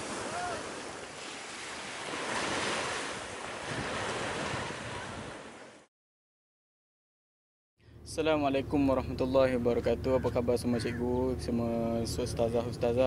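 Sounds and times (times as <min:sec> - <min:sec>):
surf washing onto shore: 0:00.0 - 0:05.9.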